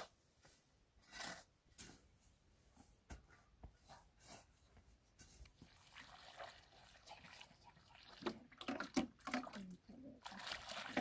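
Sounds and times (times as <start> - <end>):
water pouring from jerrycan: 5.6 - 11.0.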